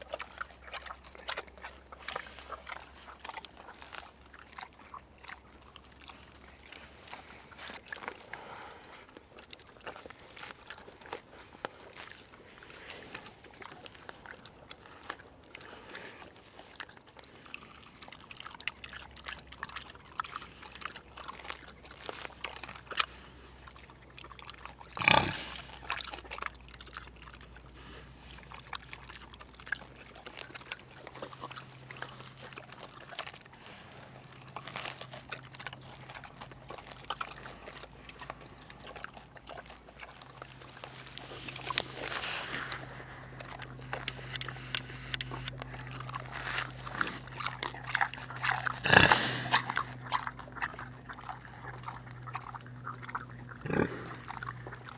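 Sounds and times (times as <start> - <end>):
pig snuffling and chewing: 0.0 - 54.9.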